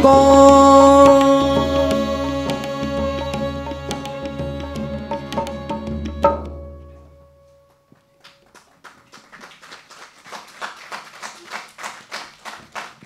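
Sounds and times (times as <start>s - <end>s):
drum and held melodic tones: 0.0s - 7.2s.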